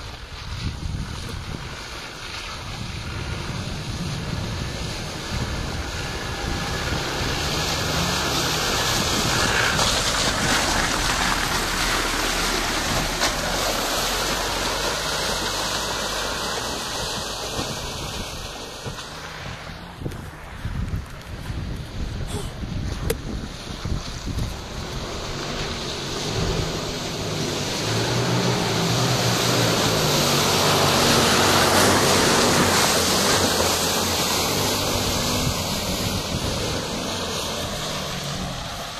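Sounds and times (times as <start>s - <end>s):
off-road vehicle engine running: 0.0s - 38.9s
tyres splashing through puddles: 0.0s - 38.9s
wind buffeting microphone: 0.0s - 38.9s.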